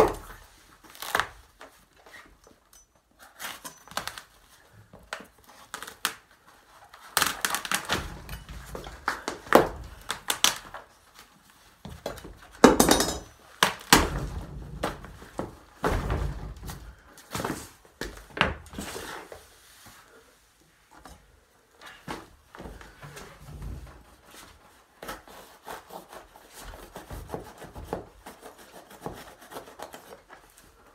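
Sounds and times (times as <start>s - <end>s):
knocks and thuds on floor: 11.9s - 13.3s, 13.9s - 18.7s.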